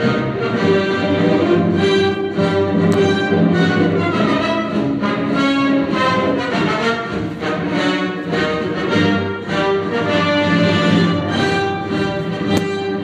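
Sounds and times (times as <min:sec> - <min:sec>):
orchestral music: 0:00.0 - 0:13.0.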